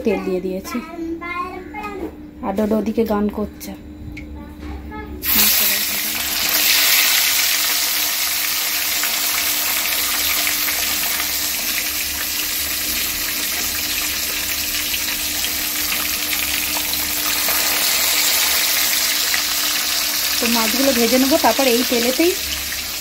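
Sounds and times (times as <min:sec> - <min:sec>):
fish sizzling in hot oil: 0:05.2 - 0:23.0.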